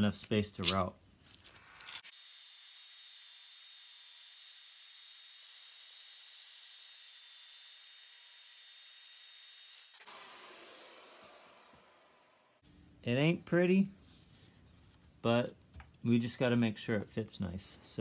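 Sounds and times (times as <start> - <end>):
router cutting wood: 2.0 - 12.6.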